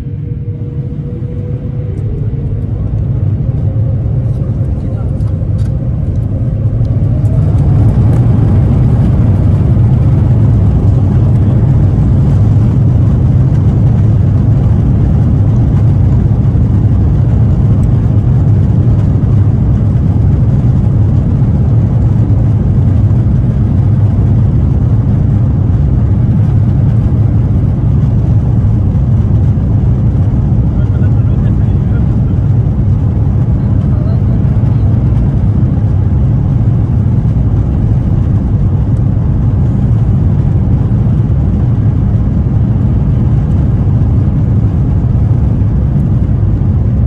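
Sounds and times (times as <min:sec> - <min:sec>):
jet engines spooling up: 0:00.0 - 0:18.0
deep engine rumble: 0:00.0 - 0:47.0.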